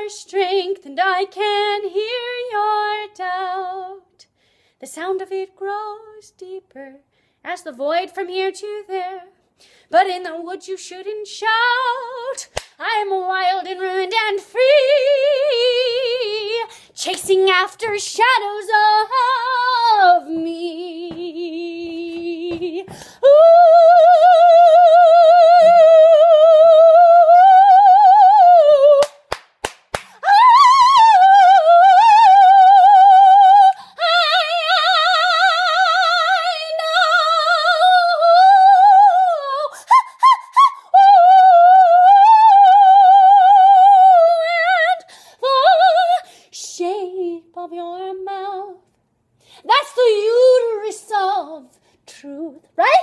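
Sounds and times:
woman singing wordless notes: 9.9s - 29.1s.

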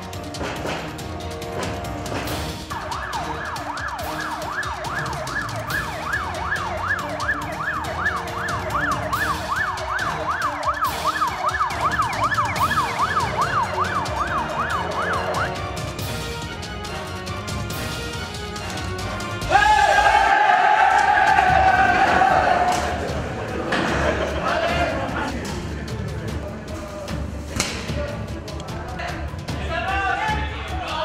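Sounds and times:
background music: 0.0s - 31.0s
emergency siren yelping: 2.6s - 15.7s.

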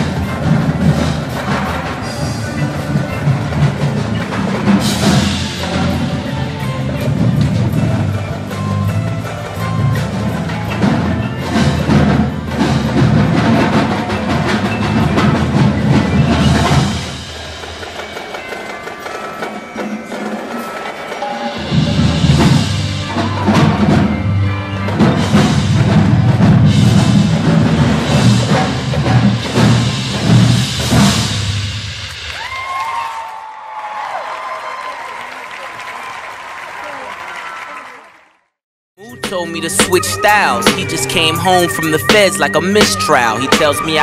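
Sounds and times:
marching bass drums: 0.0s - 17.3s, 24.9s - 31.8s, 39.1s - 44.0s
marimbas playing: 0.0s - 30.4s, 39.0s - 44.0s
cymbals: 0.0s - 32.8s.

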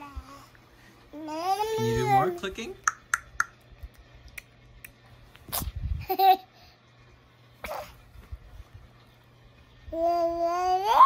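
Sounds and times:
toddler tongue clicks: 2.8s - 5.0s.

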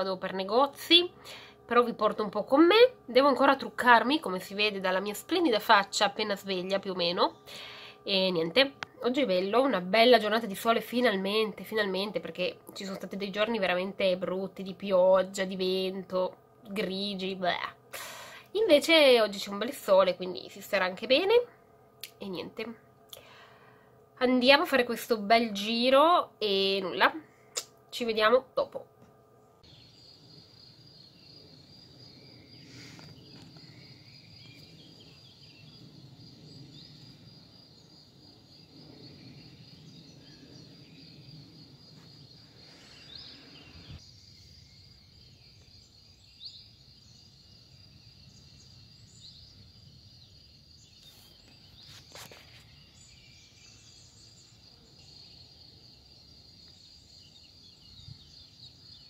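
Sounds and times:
low background rumble: 0.0s - 46.3s
cricket trilling: 29.3s - 59.0s
bird chirps: 29.6s - 59.0s.

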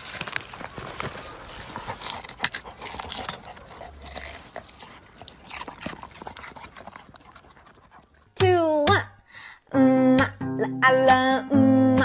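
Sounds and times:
dog rooting in soil: 0.0s - 8.6s.

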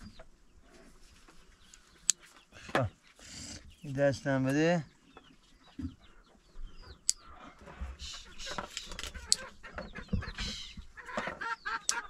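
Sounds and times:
chickens clucking: 0.0s - 12.0s
sharp clicks: 8.7s - 9.5s.

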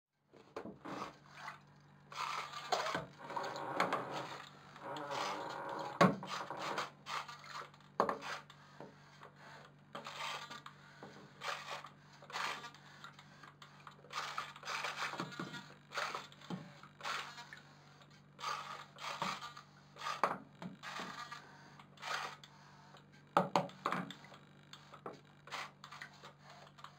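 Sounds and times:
steady low hum: 1.0s - 10.0s.

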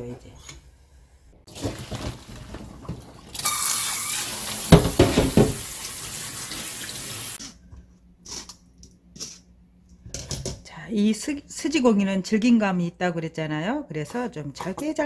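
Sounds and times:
tap water running into sink: 1.5s - 7.4s.

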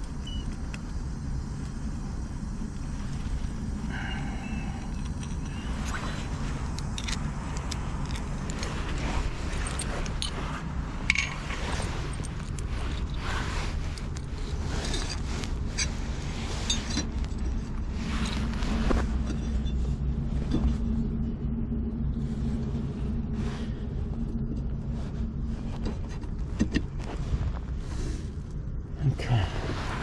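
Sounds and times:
engine humming: 0.0s - 30.0s
scraping and crunching in dirt: 2.6s - 21.2s.

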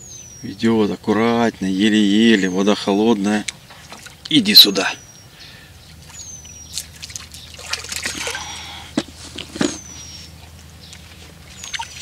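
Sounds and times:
fish splashing in water: 5.9s - 8.9s, 11.4s - 12.0s.

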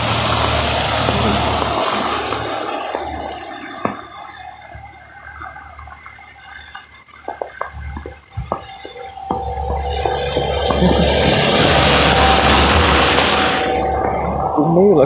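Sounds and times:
tyres hissing on wet road: 0.0s - 4.7s, 9.3s - 13.9s
quiet street ambience: 0.0s - 15.0s.

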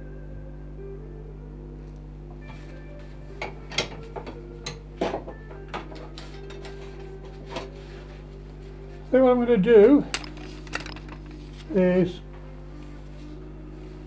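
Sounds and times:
steady low hum: 0.0s - 14.0s
metal tools clicking on wood: 10.1s - 11.3s.

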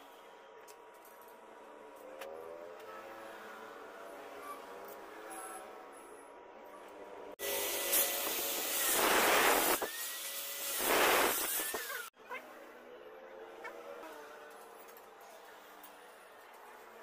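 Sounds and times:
angle grinder cutting metal: 7.4s - 12.2s.

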